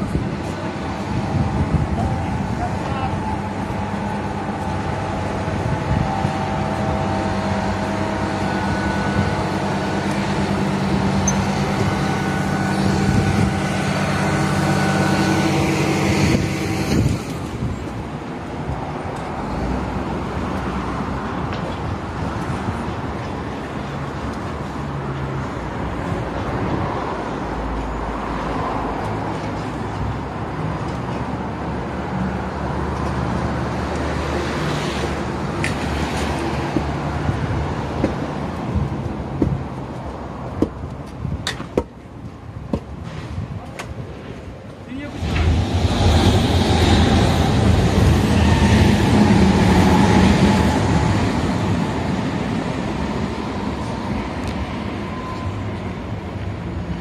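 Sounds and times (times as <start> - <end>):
diesel engine running: 0.0 - 17.7
traffic noise: 0.0 - 57.0.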